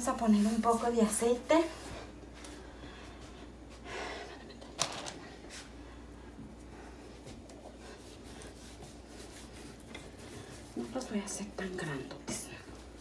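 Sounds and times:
hands rubbing oil: 6.6s - 13.0s.

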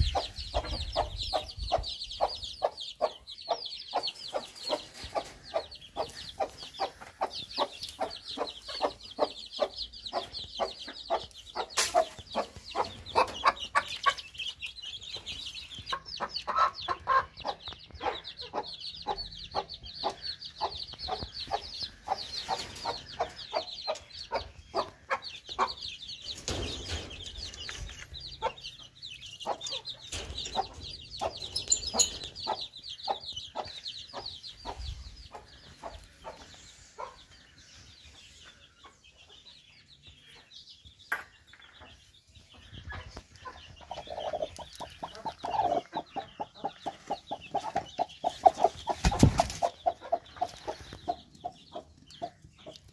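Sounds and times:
hen clucking: 0.0s - 39.4s, 42.4s - 52.9s
chicks peeping: 0.0s - 52.9s.

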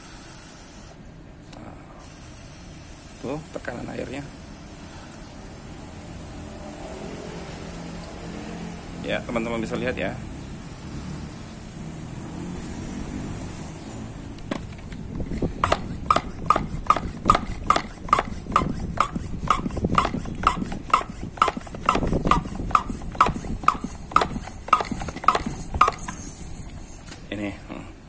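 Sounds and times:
hand pump clicking and chirping: 14.4s - 26.9s.

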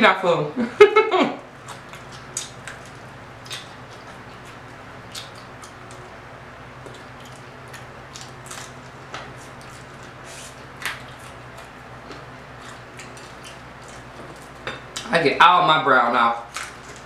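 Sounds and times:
steady low hum: 0.0s - 17.0s
chewing clicks: 1.6s - 6.0s, 10.8s - 14.3s
lip smacks while eating: 1.6s - 6.0s.

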